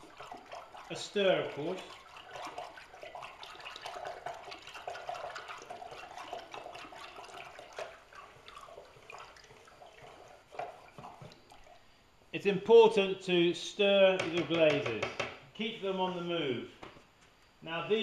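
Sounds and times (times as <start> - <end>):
liquid sloshing while stirred: 0.0 - 12.0.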